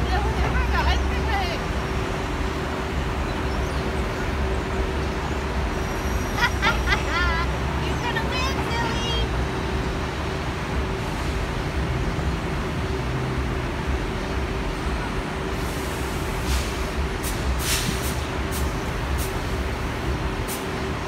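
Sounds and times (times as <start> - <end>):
faint constant hum: 0.0 - 16.3
street traffic rumble: 0.0 - 21.0
short sharp hisses: 15.7 - 18.3.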